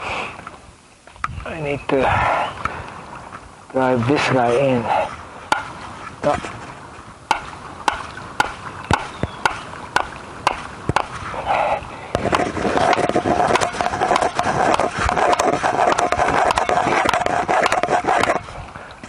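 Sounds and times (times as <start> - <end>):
stake being hammered into ground: 5.5 - 5.8, 7.3 - 11.2, 12.1 - 18.4.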